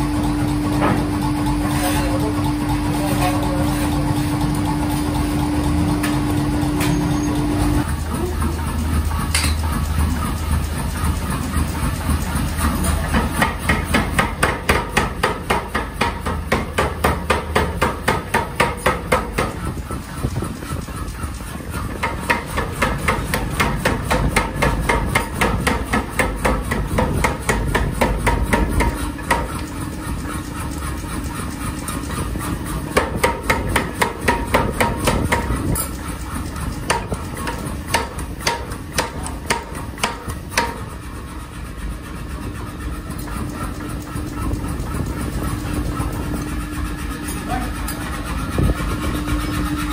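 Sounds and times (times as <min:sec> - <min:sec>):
machine rumble: 0:00.0 - 0:49.9.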